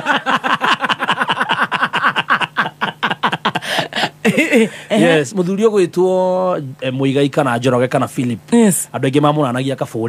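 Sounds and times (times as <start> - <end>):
man laughing heartily: 0.0 - 5.2.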